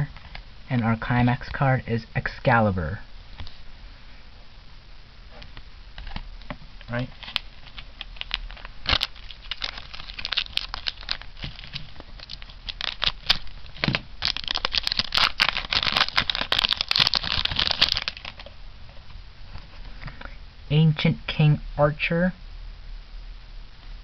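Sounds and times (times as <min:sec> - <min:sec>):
foil wrapper crinkling: 0:06.9 - 0:18.6
foil pack tearing: 0:07.1 - 0:18.5.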